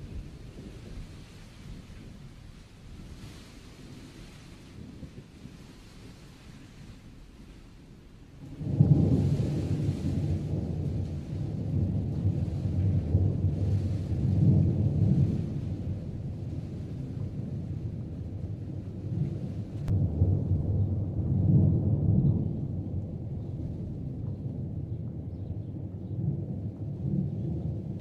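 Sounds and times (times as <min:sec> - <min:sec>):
thunder rumbling: 0:00.0 - 0:28.0.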